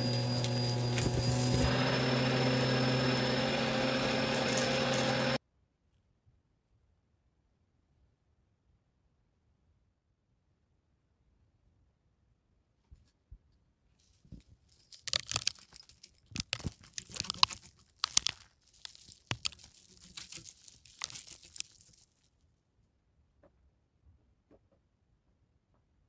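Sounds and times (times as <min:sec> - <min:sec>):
crinkling and crunching rustle: 0:00.0 - 0:03.4, 0:14.0 - 0:22.4.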